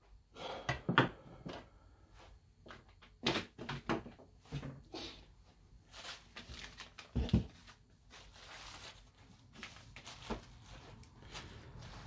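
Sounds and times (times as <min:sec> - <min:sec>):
rustling: 0:05.8 - 0:12.0.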